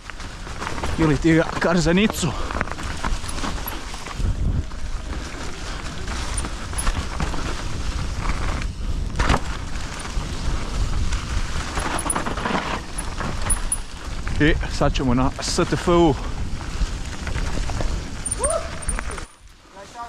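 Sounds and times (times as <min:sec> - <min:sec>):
wind and tyre rumble: 0:00.0 - 0:20.0
bike clattering over bumps: 0:00.3 - 0:04.2, 0:06.3 - 0:14.4.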